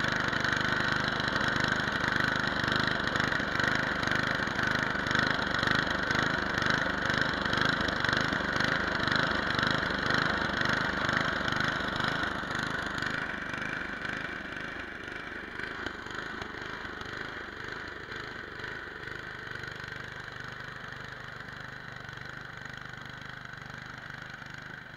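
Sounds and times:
snowblower engine running: 0:00.0 - 0:24.9.

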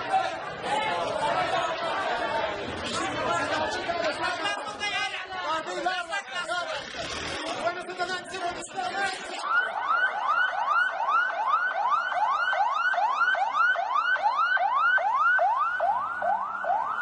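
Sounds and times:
ambulance siren yelping: 0:08.8 - 0:17.0.

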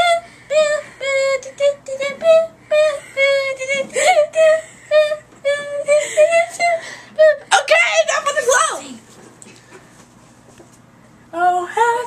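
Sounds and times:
girl singing in squeaky voice: 0:00.0 - 0:07.6.

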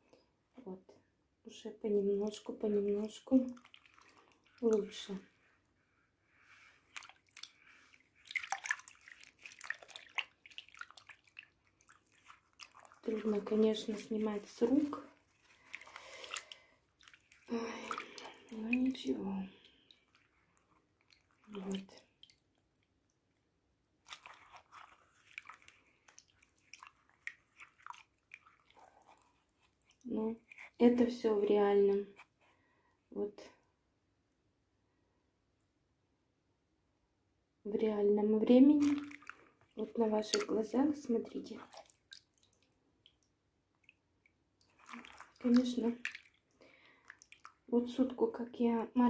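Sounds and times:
hands rubbing fabric in water: 0:02.1 - 0:23.0, 0:24.0 - 0:31.4, 0:38.5 - 0:44.0, 0:44.6 - 0:49.0
small water splashes and drips: 0:02.2 - 0:05.5, 0:06.5 - 0:23.4, 0:24.0 - 0:30.9, 0:38.7 - 0:49.0.

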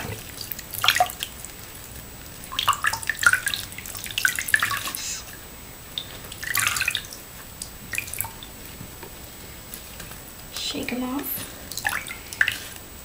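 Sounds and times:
water dripping into sink: 0:00.0 - 0:01.3, 0:02.2 - 0:10.9, 0:11.7 - 0:12.7.

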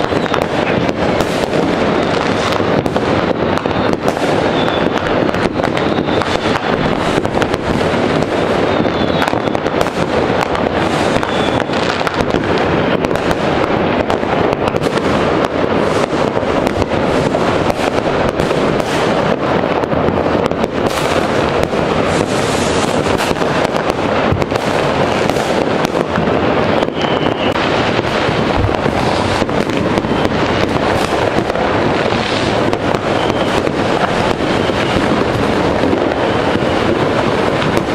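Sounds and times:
fireworks crackling and banging: 0:00.0 - 0:37.9
rocket whistles: 0:03.4 - 0:07.2, 0:08.2 - 0:10.0, 0:11.0 - 0:13.3, 0:26.7 - 0:27.7, 0:29.1 - 0:31.1, 0:32.2 - 0:35.1.

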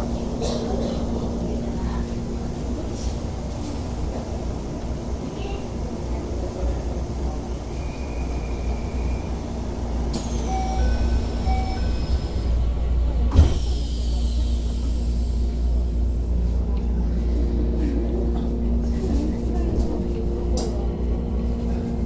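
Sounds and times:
train humming: 0:00.0 - 0:22.0
train door chime: 0:10.1 - 0:12.1
sliding doors thudding shut: 0:13.2 - 0:13.8.

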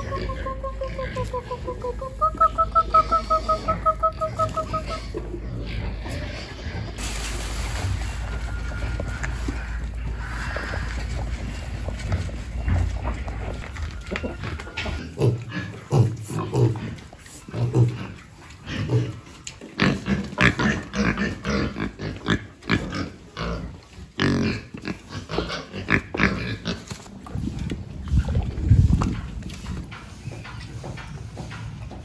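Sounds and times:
pigs grunting: 0:00.0 - 0:32.0.

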